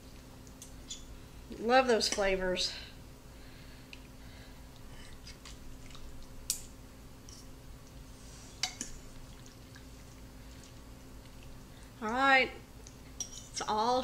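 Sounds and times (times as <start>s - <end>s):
forks scraping and clicking: 13.2s - 13.7s.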